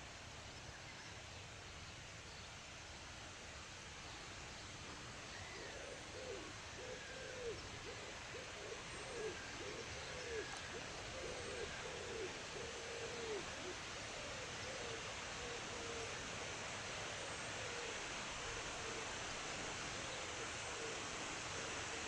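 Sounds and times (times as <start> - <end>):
steady background hiss: 0.0 - 22.0
bird hooting: 5.4 - 16.2.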